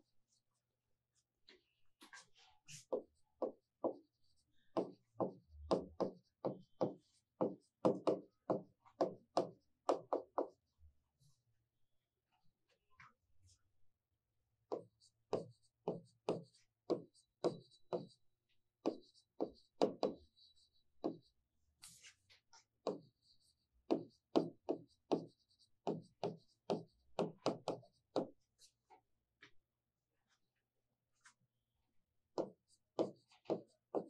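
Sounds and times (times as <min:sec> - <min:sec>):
chalk tapping on blackboard: 0:02.1 - 0:04.2, 0:04.8 - 0:10.6, 0:14.7 - 0:18.2, 0:18.8 - 0:22.2, 0:22.8 - 0:28.4, 0:32.4 - 0:34.0
chalk scratching: 0:18.9 - 0:28.7.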